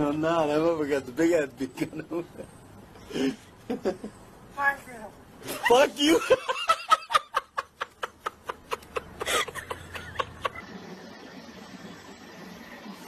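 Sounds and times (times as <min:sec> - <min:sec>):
person laughing: 0:05.5 - 0:10.6.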